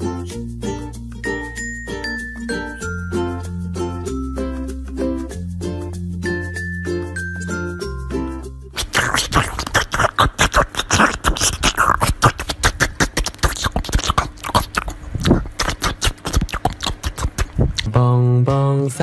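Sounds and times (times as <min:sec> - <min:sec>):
dog crunching watermelon: 0:08.8 - 0:17.9.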